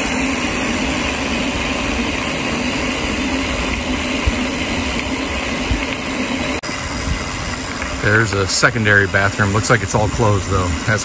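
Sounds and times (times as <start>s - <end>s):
bicycle tyres on rough road: 0.0s - 11.0s
wind across microphone: 6.7s - 8.1s.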